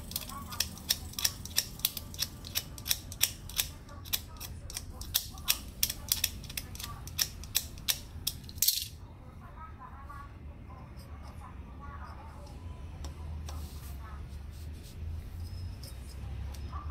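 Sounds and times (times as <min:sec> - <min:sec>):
ratcheting screwdriver clicking: 0:00.0 - 0:08.8.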